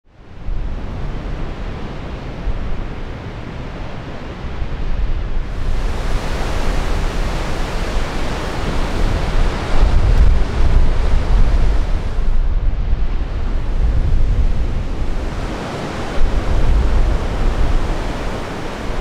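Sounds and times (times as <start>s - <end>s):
wind: 0.0s - 19.0s
wind buffeting microphone: 0.2s - 19.0s
ocean surf hiss: 5.4s - 12.4s, 13.2s - 19.0s.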